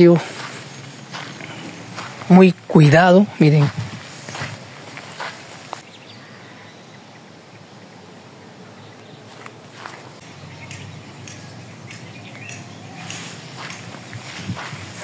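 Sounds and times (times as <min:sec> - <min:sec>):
soft footsteps: 0:00.0 - 0:05.8, 0:09.3 - 0:10.9, 0:12.5 - 0:15.0
outdoor background noise: 0:00.0 - 0:15.0.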